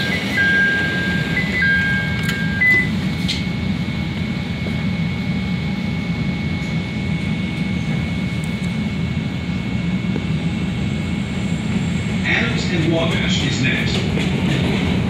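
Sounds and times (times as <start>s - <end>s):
train door chime: 0.0s - 3.5s
train car low rumble: 0.0s - 15.0s
train motor whine: 0.0s - 15.0s.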